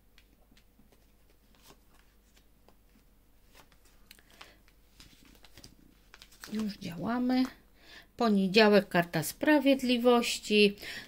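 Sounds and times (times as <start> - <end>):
cards slapping and sliding on cloth: 0.1 - 7.5.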